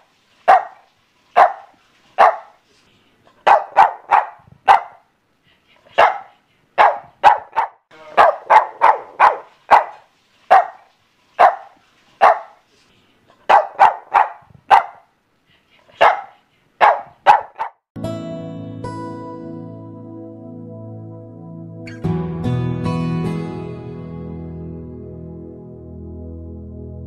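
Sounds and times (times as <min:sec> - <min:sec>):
dog barking: 0:00.5 - 0:02.6, 0:03.4 - 0:05.1, 0:05.9 - 0:12.6, 0:13.4 - 0:15.1, 0:16.0 - 0:17.8.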